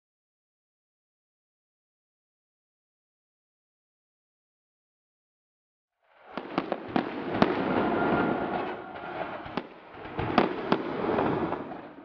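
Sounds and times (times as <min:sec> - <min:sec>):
firework crackling: 0:06.0 - 0:12.0
firework bangs: 0:06.1 - 0:12.0.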